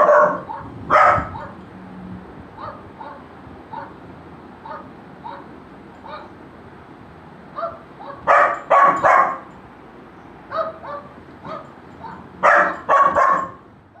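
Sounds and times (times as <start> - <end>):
dog barking: 0.0 - 1.6, 2.6 - 4.0, 4.6 - 6.3, 7.6 - 9.5, 10.5 - 14.0.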